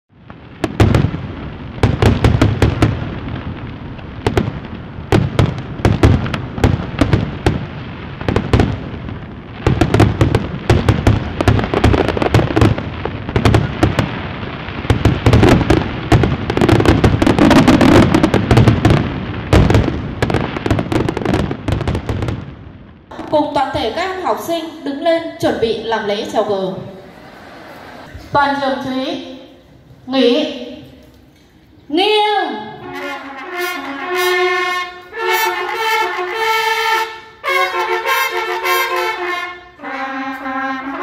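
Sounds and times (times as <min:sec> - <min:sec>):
fireworks bangs and crackling pops: 0:00.1 - 0:23.9, 0:32.8 - 0:41.0.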